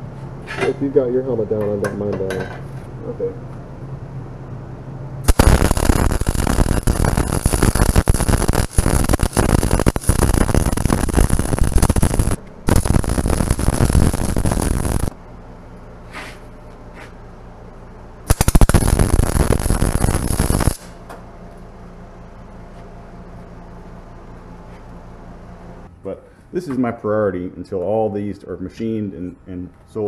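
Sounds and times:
steady low hum: 0:00.0 - 0:30.0
welding arc crackling: 0:05.2 - 0:15.2, 0:18.3 - 0:21.0.

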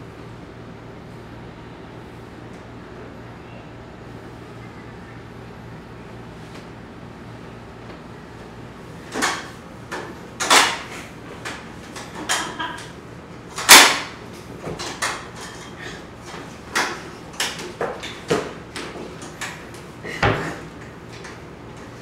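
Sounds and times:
bodies knocking against a wall: 0:20.1 - 0:20.6.

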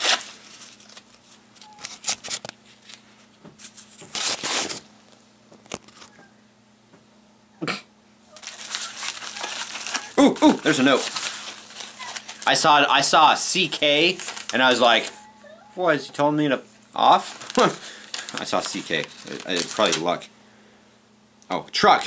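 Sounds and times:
paper mailer tearing: 0:00.0 - 0:02.5, 0:03.7 - 0:04.9, 0:08.3 - 0:15.2, 0:17.0 - 0:20.2
paper crinkling: 0:00.0 - 0:04.9, 0:05.6 - 0:06.2, 0:08.3 - 0:15.7, 0:17.0 - 0:20.3.

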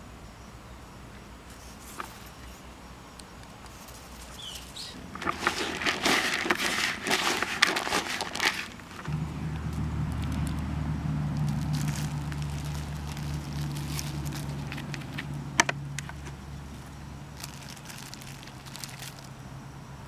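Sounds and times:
mulch and soil crackling: 0:03.2 - 0:19.4
low motor hum: 0:08.8 - 0:18.3.

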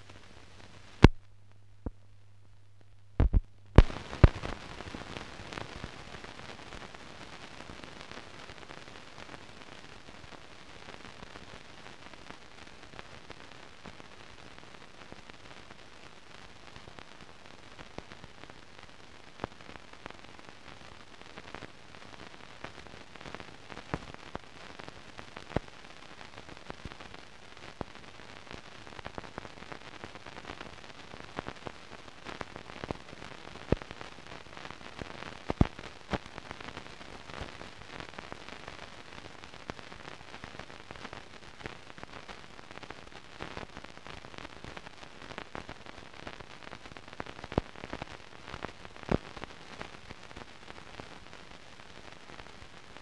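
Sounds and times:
film hiss: 0:00.0 - 0:53.0
film clicks and pops: 0:03.2 - 0:05.0.

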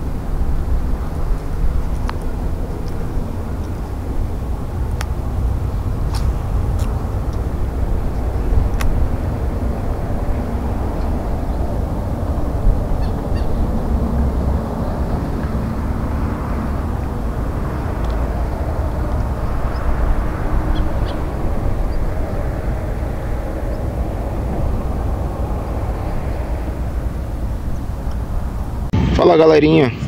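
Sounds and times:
wind buffeting microphone: 0:00.0 - 0:29.2.

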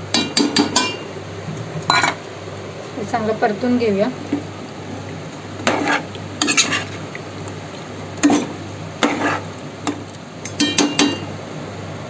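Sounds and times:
spoon scraping and knocking a pot: 0:05.6 - 0:07.0, 0:08.2 - 0:10.0.

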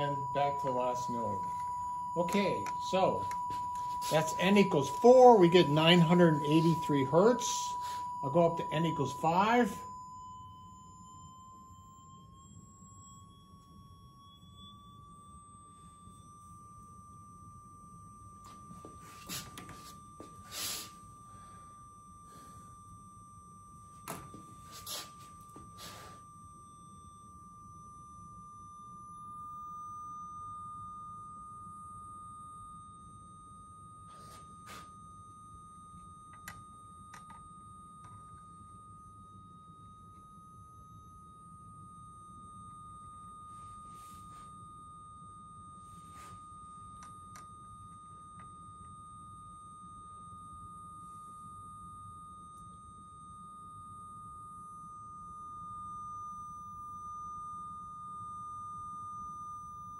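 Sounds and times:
steady pure tone from loudspeaker: 0:00.0 - 0:01.6, 0:02.2 - 0:09.8
faint clicks of knobs turning: 0:36.3 - 0:38.2, 0:47.0 - 0:47.5.

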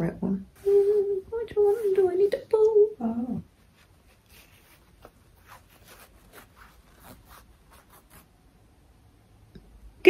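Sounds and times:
thread rustling through fabric: 0:03.2 - 0:08.4.

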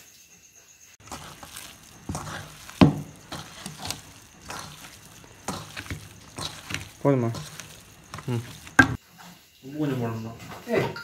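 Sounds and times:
hands squelching wet mixture: 0:01.0 - 0:09.0
knock against steel bowl: 0:08.8 - 0:09.0.

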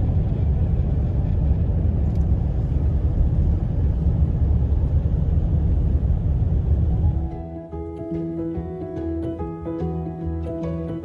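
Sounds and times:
car driving on paved road: 0:00.0 - 0:07.7.

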